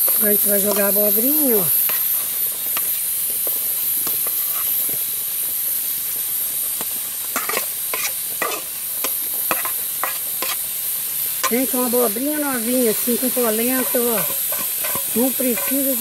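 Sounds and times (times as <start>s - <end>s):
vegetables sizzling in a pan: 0.0s - 16.0s
wooden spoon scraping a pot: 7.4s - 8.6s, 13.8s - 16.0s.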